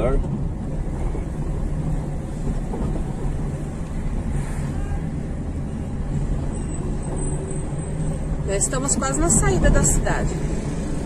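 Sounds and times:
vehicle engine and tyres rumbling: 0.0 - 11.0.

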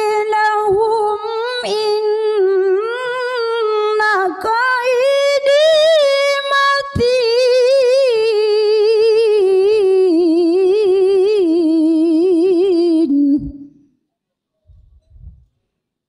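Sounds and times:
woman's melodic recitation: 0.0 - 13.6.

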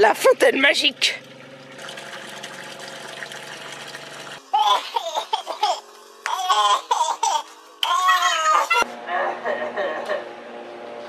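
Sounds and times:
water splashing into basin: 0.8 - 4.4.

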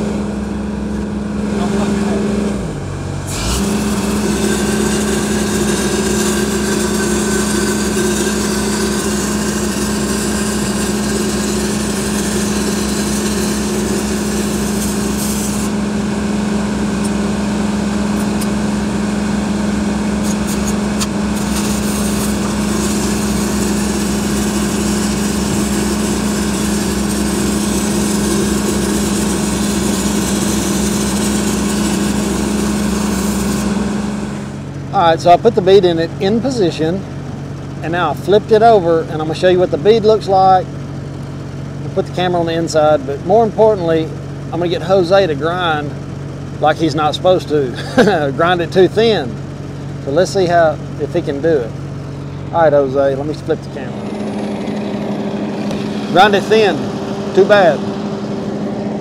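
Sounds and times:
welding machine engine hum: 0.0 - 37.9, 43.0 - 59.0
welding arc crackling: 3.3 - 15.8, 20.2 - 34.6.

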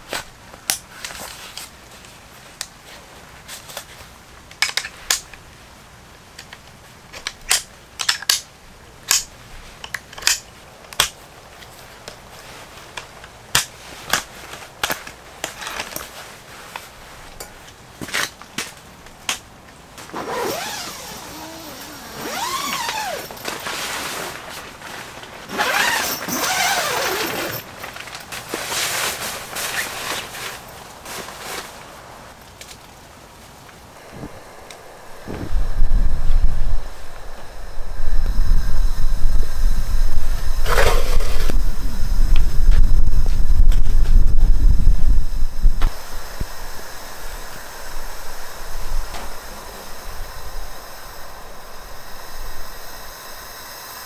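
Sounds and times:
scraping and rustling of fabric: 0.9 - 4.2, 11.5 - 18.8, 20.0 - 47.5.

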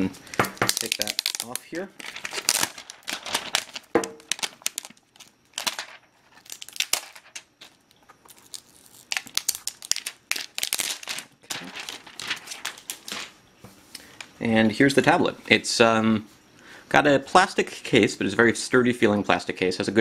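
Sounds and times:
plastic wrapping crinkling and tearing: 0.6 - 13.4.

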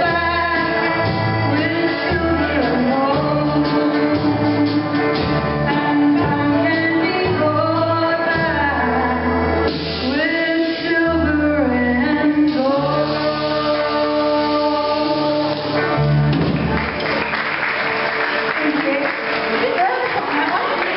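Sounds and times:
woman singing: 0.0 - 16.0, 18.6 - 20.9
live band playing: 0.0 - 20.9
audience applause: 15.8 - 20.9.

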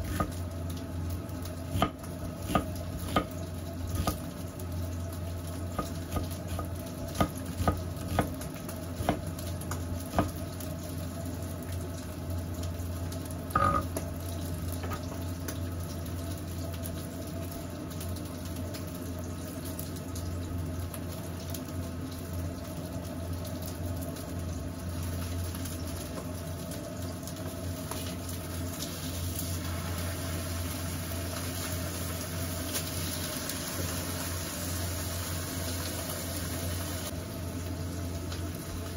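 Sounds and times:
onion sizzling in a pan: 0.0 - 38.9.

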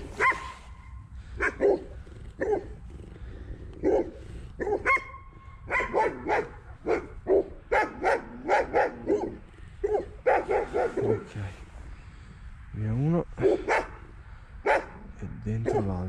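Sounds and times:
dog barking: 0.2 - 2.8, 3.8 - 11.4, 13.4 - 16.0.

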